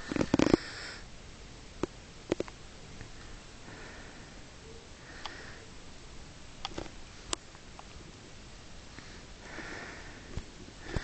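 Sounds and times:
soft breathy sniff: 3.2 - 5.8.

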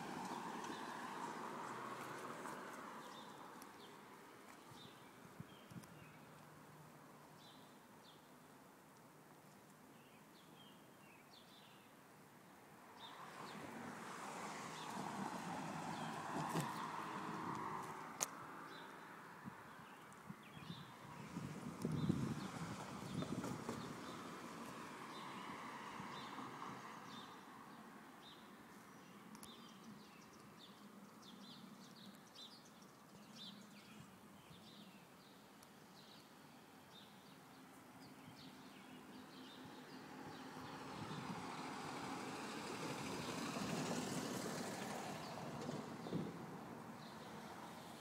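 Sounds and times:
car passing: 0.0 - 4.2, 12.9 - 19.8, 21.0 - 27.7, 39.7 - 48.0
small birds chirping: 3.0 - 6.5, 18.6 - 24.2, 27.0 - 41.3.

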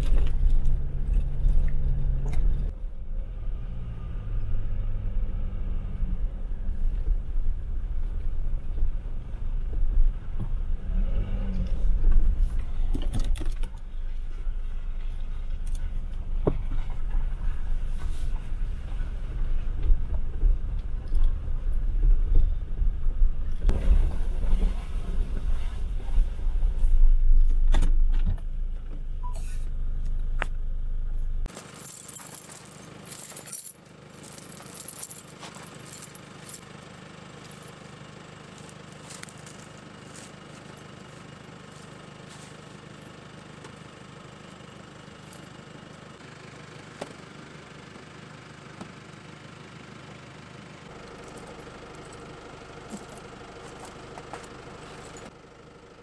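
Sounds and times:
vehicle rumbling over rough track: 0.0 - 33.3
snow chain clinking: 31.5 - 36.6, 52.9 - 54.0.

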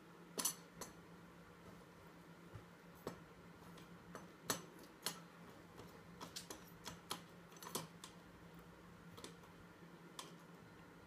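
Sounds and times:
faint steady hum: 0.0 - 11.0
metal cutlery clinking against wall: 0.4 - 1.0, 6.2 - 8.0.

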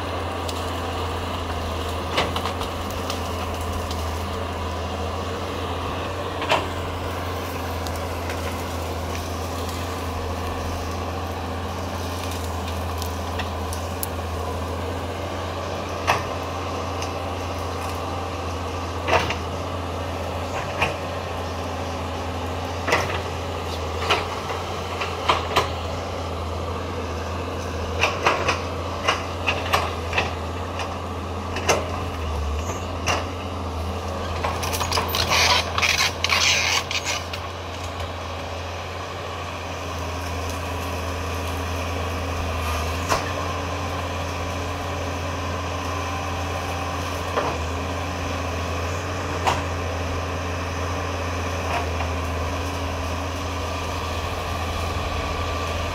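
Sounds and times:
excavator diesel engine running: 0.0 - 55.9
crackling and rattling: 0.4 - 5.0, 27.6 - 38.1, 51.5 - 55.9.

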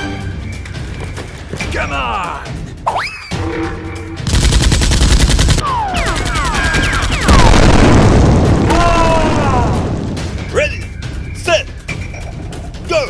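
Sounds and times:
machine-gun fire: 4.3 - 9.4
loud explosion: 7.2 - 10.4.

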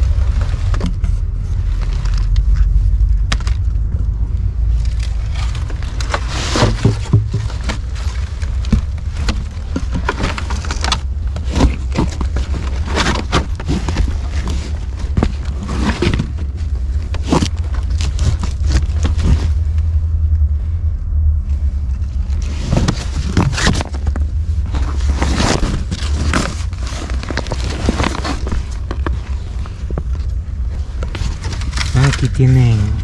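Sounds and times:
steady low rumble: 0.0 - 33.0.

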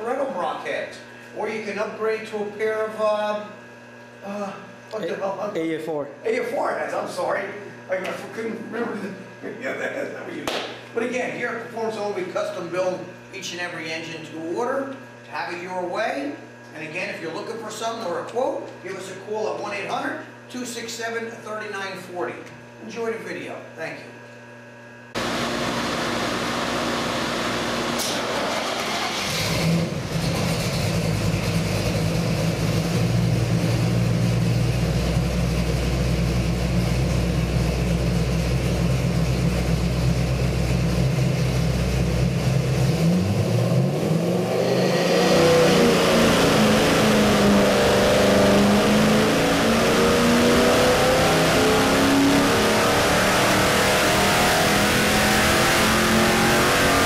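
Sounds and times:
engine idling and revving: 25.2 - 57.0.

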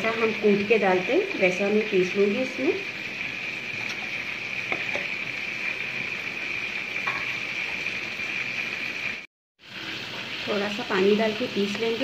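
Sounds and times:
onions sizzling in oil: 0.0 - 12.0.

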